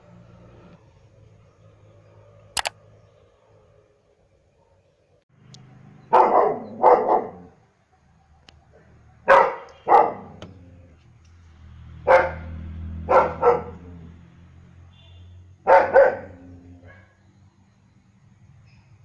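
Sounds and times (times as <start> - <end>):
dog barking: 6.1 - 7.6, 9.2 - 10.4, 12.0 - 14.0, 15.6 - 17.2.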